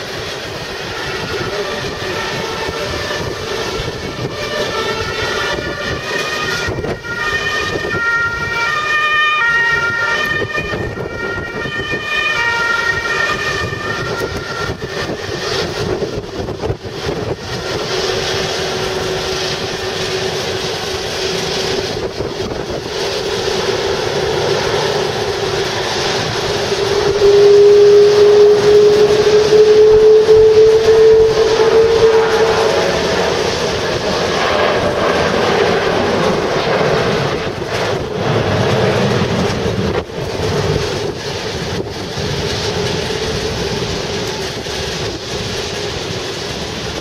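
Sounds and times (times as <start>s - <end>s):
jet engines whine and rumble: 0.0s - 47.0s
high tone stepping in pitch: 25.7s - 34.0s.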